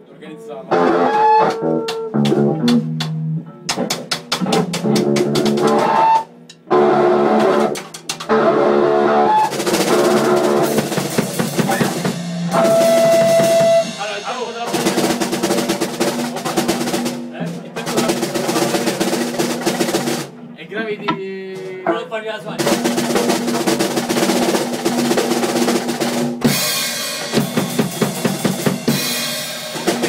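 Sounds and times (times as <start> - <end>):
music with guitar: 0.7 - 7.8
drum kit playing: 0.7 - 30.0.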